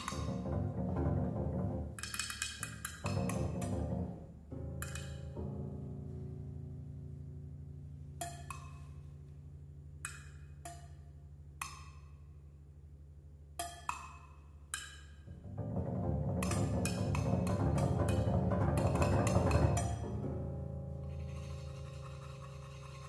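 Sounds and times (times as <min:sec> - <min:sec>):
woody drum knocks: 0:00.0 - 0:05.7, 0:15.3 - 0:20.4.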